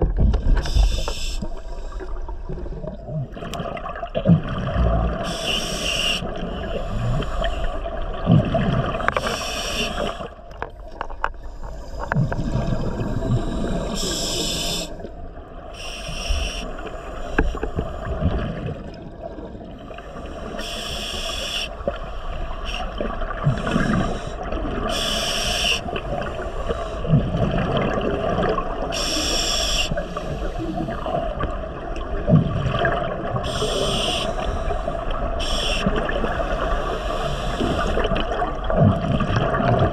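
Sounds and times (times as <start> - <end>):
bubbling and gurgling: 0.0 - 39.9
underwater rumble: 0.0 - 39.9
regulator breathing hiss: 0.6 - 2.1, 5.2 - 7.8, 9.2 - 10.3, 13.4 - 15.1, 15.7 - 18.2, 20.3 - 27.1, 28.9 - 31.2, 33.4 - 38.0.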